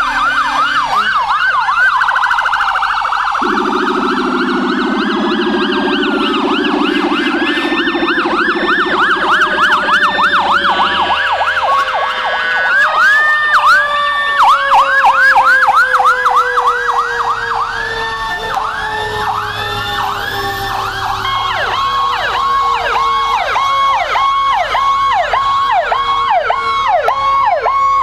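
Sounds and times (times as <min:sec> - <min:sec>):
siren tone sliding down: 0:00.0 - 0:27.6
emergency sirens yelping: 0:00.0 - 0:28.0
low steady horn: 0:03.4 - 0:12.0.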